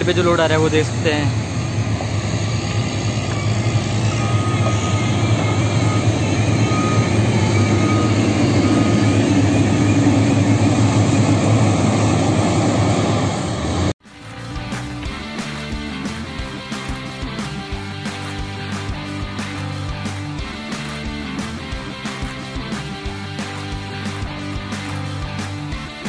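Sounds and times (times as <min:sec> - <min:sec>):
diesel engine running under load: 0:00.0 - 0:13.9.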